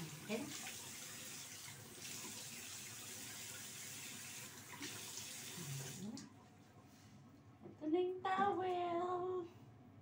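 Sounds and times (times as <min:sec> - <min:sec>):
faucet running: 0:00.0 - 0:06.3
water spilling into basin: 0:00.0 - 0:06.4.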